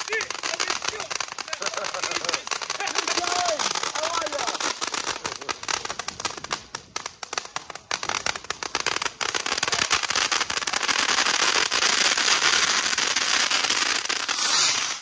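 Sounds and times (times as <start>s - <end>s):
firework fountain crackling: 0.0s - 15.0s.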